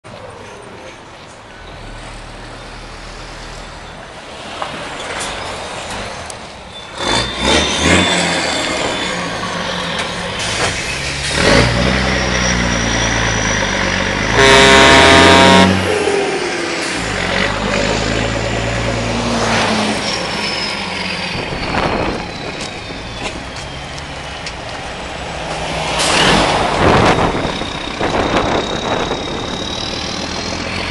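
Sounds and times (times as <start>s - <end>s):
truck engine passing: 1.8s - 30.9s
air horn: 14.3s - 16.1s
loud burst of noise: 14.4s - 16.0s.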